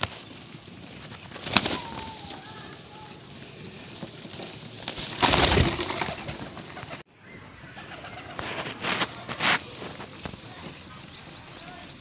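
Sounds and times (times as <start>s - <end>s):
loud rustling: 0.0s - 7.0s, 8.2s - 12.0s
pigeons cooing: 1.2s - 12.0s.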